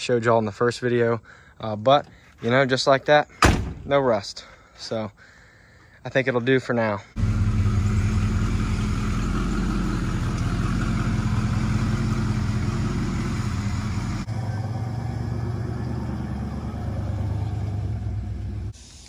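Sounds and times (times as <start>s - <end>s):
truck driving away: 7.2s - 18.8s.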